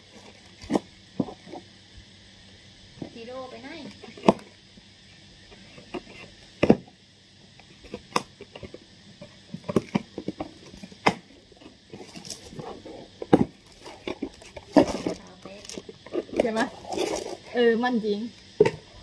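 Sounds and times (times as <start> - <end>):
cardboard box rustling: 12.0 - 17.4.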